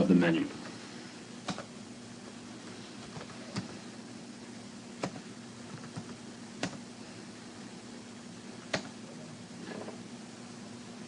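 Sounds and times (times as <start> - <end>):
faint hum and hiss: 0.0 - 11.0.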